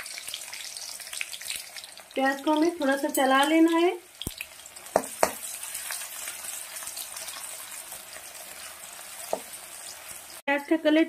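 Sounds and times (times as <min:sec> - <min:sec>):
onions sizzling in hot oil: 0:00.0 - 0:11.0
spatula knocking against pan: 0:04.9 - 0:05.4.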